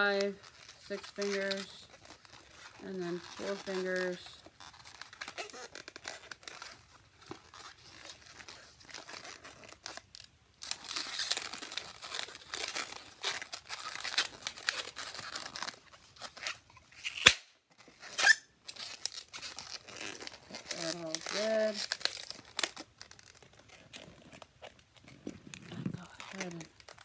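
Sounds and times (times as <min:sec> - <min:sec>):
balloons rubbing and creaking: 0:00.0 - 0:27.0
balloon snap: 0:17.0 - 0:17.6.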